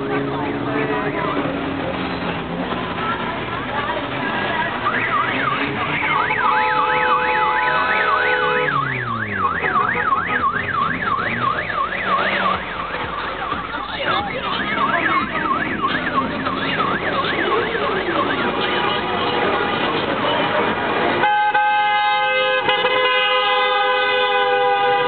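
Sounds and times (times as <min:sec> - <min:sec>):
electronic siren yelping: 0:04.7 - 0:18.6.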